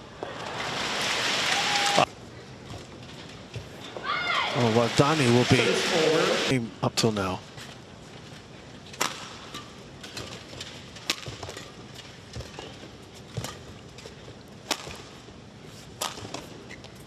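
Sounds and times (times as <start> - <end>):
low hall hum: 0.0 - 17.0
racket hitting shuttlecock: 11.0 - 12.8, 14.6 - 15.2.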